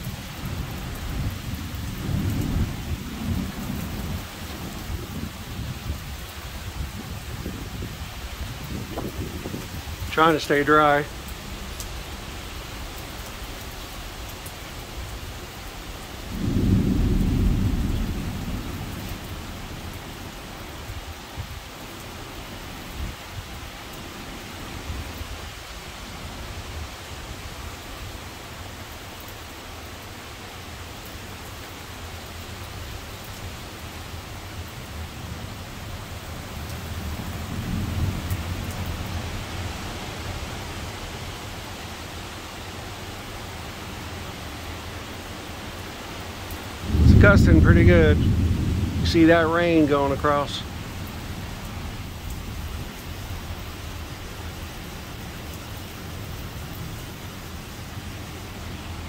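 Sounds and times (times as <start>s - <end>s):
thunder rumbling: 0.0s - 11.8s, 16.2s - 20.9s, 36.2s - 39.2s, 46.8s - 53.8s
heavy rain falling: 0.0s - 59.0s.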